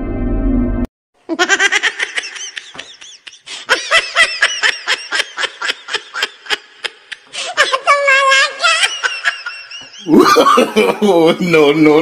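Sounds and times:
hearty human laughter: 1.4s - 7.9s, 8.6s - 11.5s.

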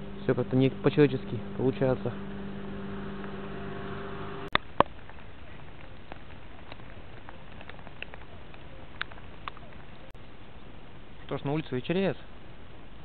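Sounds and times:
low hum: 0.0s - 5.2s
light rain pattering: 2.1s - 13.0s.

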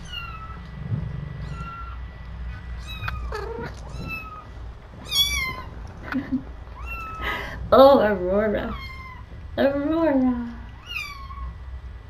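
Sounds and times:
kittens mewing: 1.4s - 7.6s, 8.6s - 9.4s, 10.7s - 11.6s.

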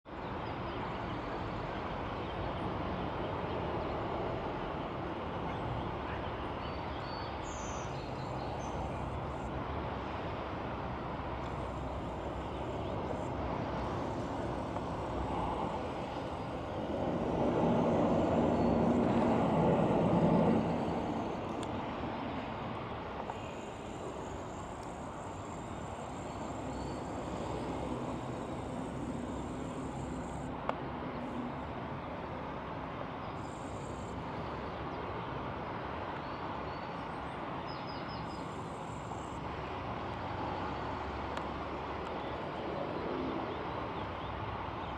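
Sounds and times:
city traffic hum: 0.1s - 44.9s
vehicle engine passing: 11.6s - 22.6s.

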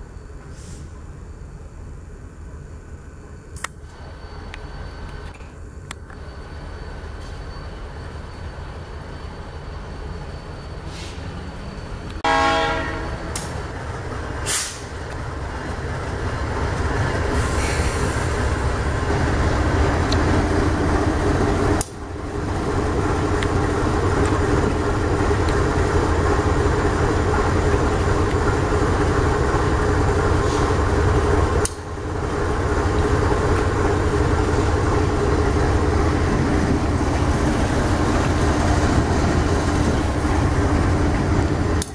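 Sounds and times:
train rolling past: 0.0s - 41.9s
locomotive horn: 12.2s - 13.5s
diesel engine rumble: 13.2s - 41.9s.

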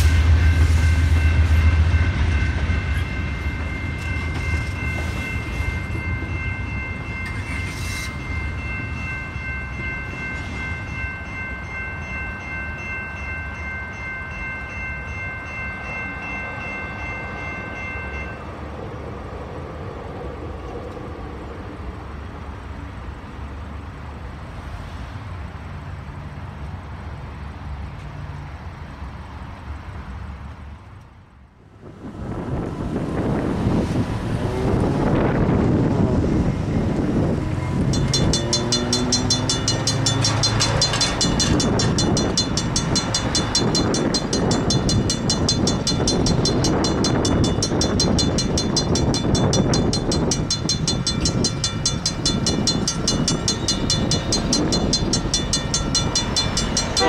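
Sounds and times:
crossing bell ringing: 0.0s - 18.7s, 33.3s - 57.0s
freight train rumbling: 0.0s - 57.0s
wind noise on microphone: 31.6s - 57.0s.

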